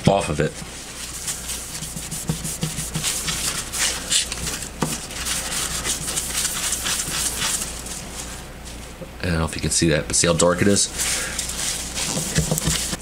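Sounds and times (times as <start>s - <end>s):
paper towel wiping metal plate: 0.5s - 7.9s, 10.9s - 13.0s.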